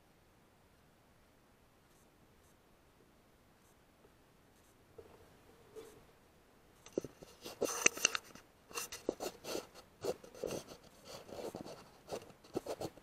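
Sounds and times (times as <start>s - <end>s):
scraping and rustling handling noise: 6.8s - 13.0s.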